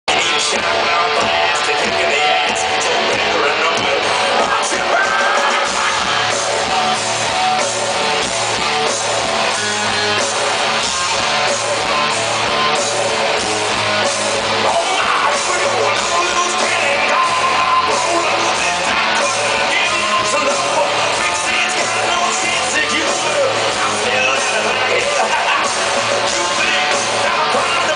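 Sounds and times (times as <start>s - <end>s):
lead singer: 0.1s - 7.8s, 14.0s - 27.9s
live rock band: 0.1s - 27.9s.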